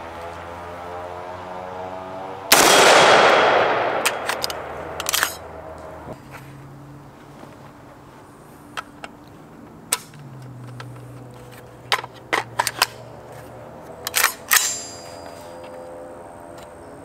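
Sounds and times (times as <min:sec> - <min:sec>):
metallic clicks of rifle action: 0:02.6 - 0:05.9, 0:09.9 - 0:13.1, 0:13.9 - 0:15.0.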